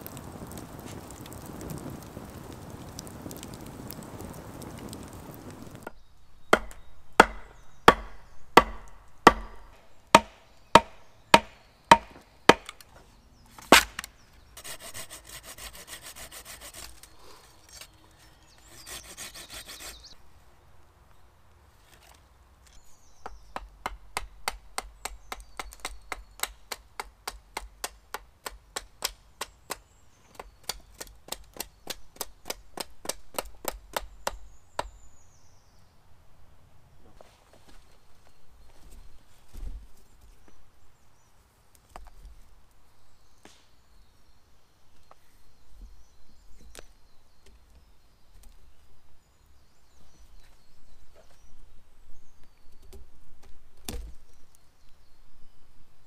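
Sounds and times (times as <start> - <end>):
sharp chopping strokes on wood: 5.8 - 12.8, 13.6 - 17.1, 18.6 - 20.1
rasping sawing: 14.6 - 17.9, 18.6 - 20.1
light quick strokes on wood: 14.6 - 20.2.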